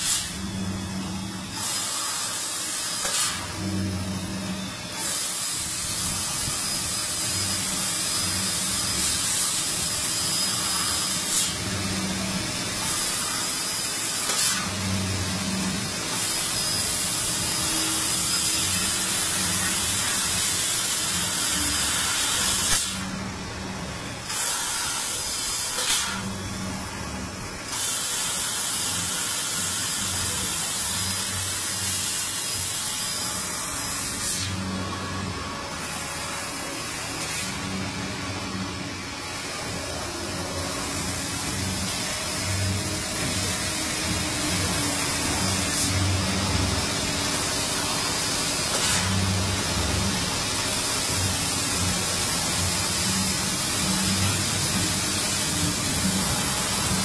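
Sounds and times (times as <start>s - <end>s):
laser cutter gas jet hissing: 0.0s - 57.0s
low machine hum: 14.7s - 25.5s.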